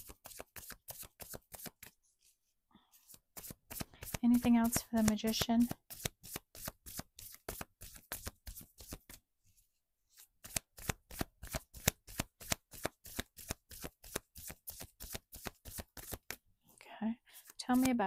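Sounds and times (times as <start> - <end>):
cards being shuffled: 0.0 - 2.0, 3.0 - 9.2, 10.2 - 16.4, 17.4 - 18.0.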